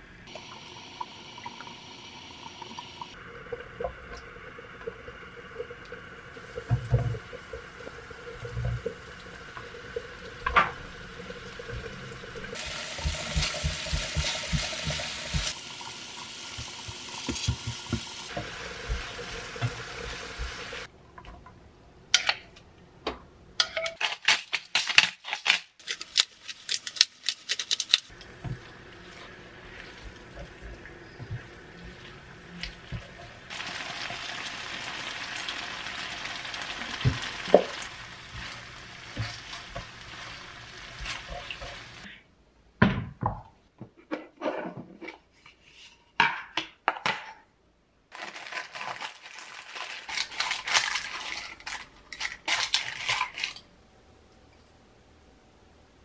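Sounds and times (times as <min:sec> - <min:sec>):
oil sizzling in a frying pan: 0:04.9 - 0:20.9, 0:33.5 - 0:42.1
wooden spoon stirring and scraping: 0:25.9 - 0:33.4.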